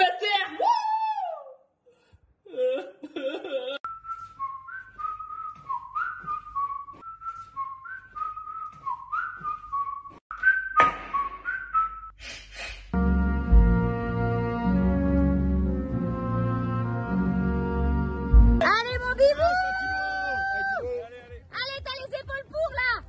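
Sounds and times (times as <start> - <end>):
person whistling a melody: 3.9 - 12.2
sharp knock: 10.8 - 11.5.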